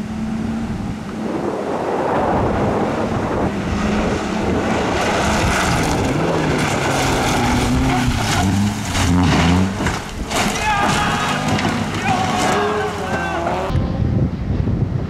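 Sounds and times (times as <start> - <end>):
rally car engine: 0.0 - 15.0
gravel spattering from tyres: 4.9 - 13.4.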